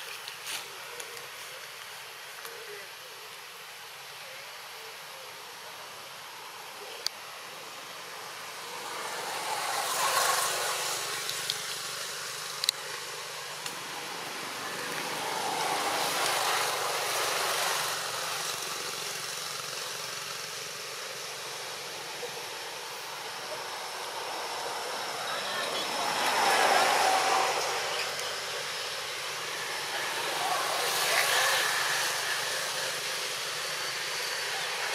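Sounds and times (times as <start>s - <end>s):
outdoor background noise: 0.0s - 34.9s
passing vehicle engine: 8.2s - 20.3s, 21.4s - 34.9s.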